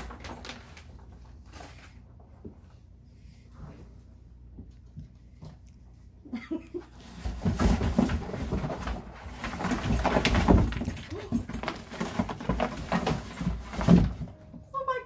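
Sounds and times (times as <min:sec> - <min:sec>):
paws scrabbling on cardboard: 0:07.0 - 0:14.3
cardboard box knocking and rustling: 0:07.2 - 0:14.4.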